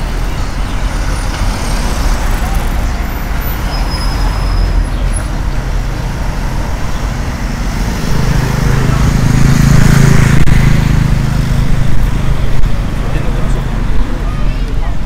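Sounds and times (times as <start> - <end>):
road traffic: 0.0 - 15.0
vehicle engine low drone: 0.0 - 15.0.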